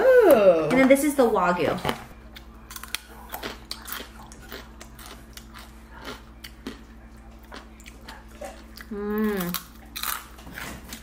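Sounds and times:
people chewing food: 2.1s - 11.0s.

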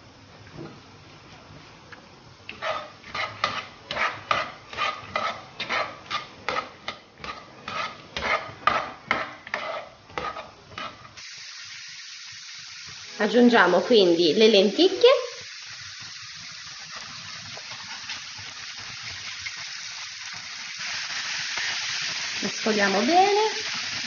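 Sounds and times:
vegetables sizzling in oil: 2.2s - 24.0s
spatula scraping frying pan: 2.5s - 11.2s.

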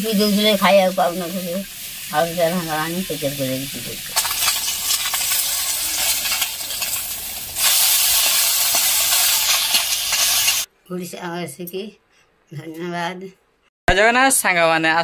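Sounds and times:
person speaking: 0.0s - 4.1s, 10.9s - 14.2s
fish sizzling in hot oil: 0.0s - 10.7s
metal spatula scraping wok: 4.2s - 10.7s.

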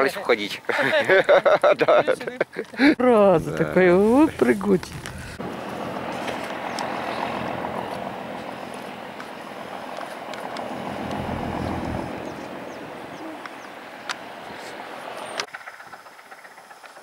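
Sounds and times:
distant crane engine drone: 4.8s - 16.9s.

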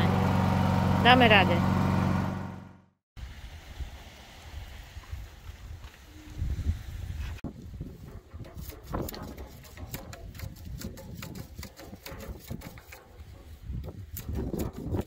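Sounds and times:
machete scraping cane pole: 8.0s - 15.0s.

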